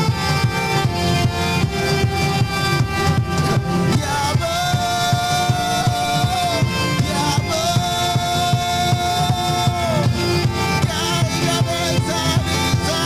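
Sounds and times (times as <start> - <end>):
live band with drums and bass: 0.0 - 13.0
man singing into microphone: 3.9 - 13.0.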